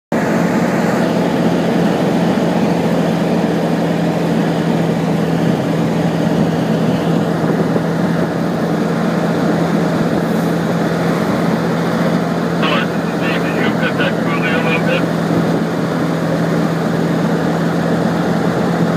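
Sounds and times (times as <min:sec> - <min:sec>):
vehicle engine drone: 0:00.2 - 0:18.9.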